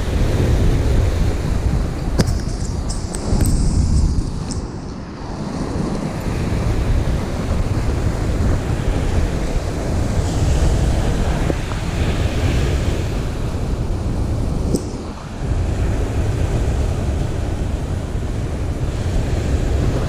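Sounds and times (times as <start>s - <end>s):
surf breaking on sand: 0.0s - 20.0s
wind buffeting microphone: 0.0s - 20.0s.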